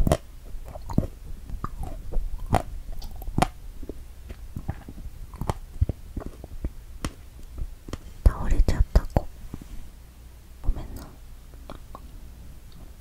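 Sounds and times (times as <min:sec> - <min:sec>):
wet chewing mouth smacks: 0:00.0 - 0:08.0.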